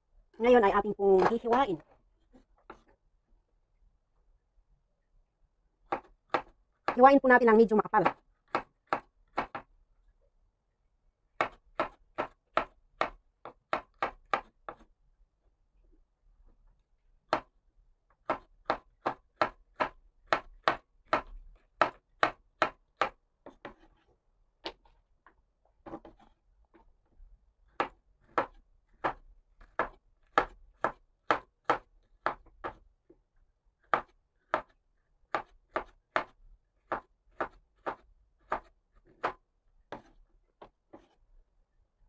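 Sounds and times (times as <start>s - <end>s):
knife cutting on wooden board: 19.4s - 25.0s, 25.8s - 26.4s, 36.9s - 41.2s
soft scraping on cutting board: 40.9s - 41.3s.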